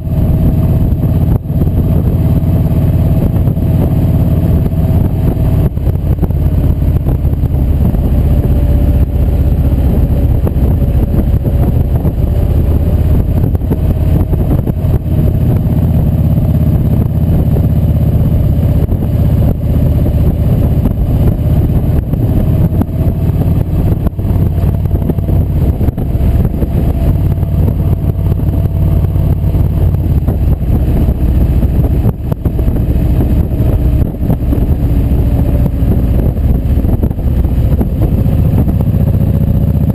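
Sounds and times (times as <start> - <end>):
motorcycle engine running: 0.0 - 39.9
wind rush on microphone: 0.0 - 39.9.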